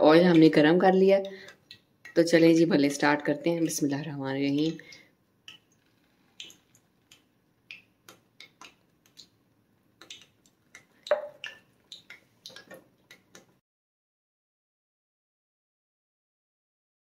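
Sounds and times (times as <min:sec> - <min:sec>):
hot oil crackling and popping: 0:04.6 - 0:09.4, 0:10.0 - 0:13.6.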